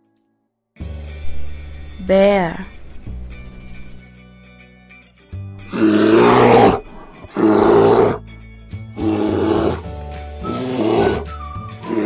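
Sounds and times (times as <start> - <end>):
background music: 0.0 - 12.0
bear roaring: 5.6 - 8.2, 9.0 - 12.0.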